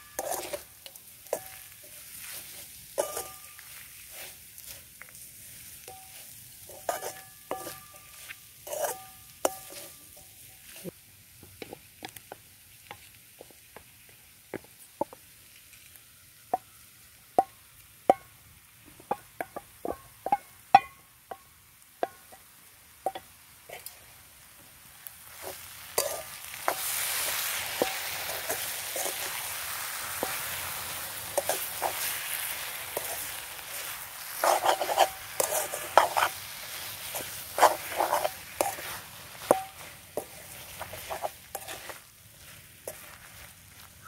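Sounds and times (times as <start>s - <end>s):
steel spoon scraping a pan: 0.0s - 10.9s, 23.0s - 24.0s, 25.3s - 44.0s
food sizzling in a wok: 0.0s - 44.0s.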